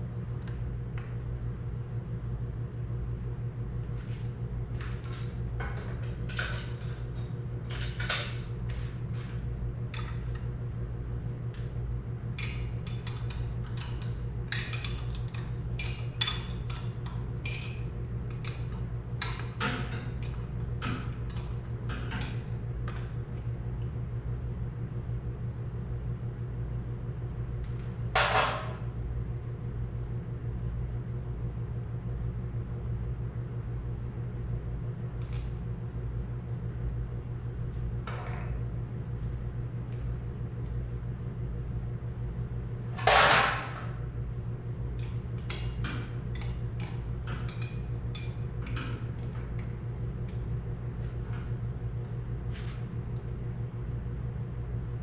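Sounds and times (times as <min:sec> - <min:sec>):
shop fan humming: 0:00.0 - 0:55.0
tools and metal parts clinking: 0:05.0 - 0:08.5.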